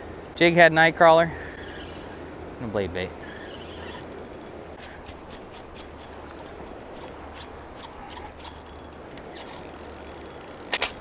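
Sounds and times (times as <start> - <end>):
fishing reel clicking: 3.6 - 11.0.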